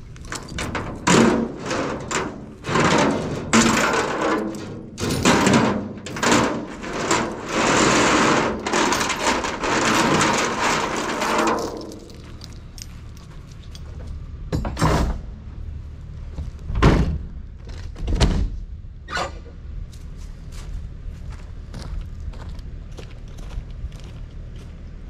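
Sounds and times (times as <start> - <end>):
steel chains rattling and scraping: 0.0 - 15.0.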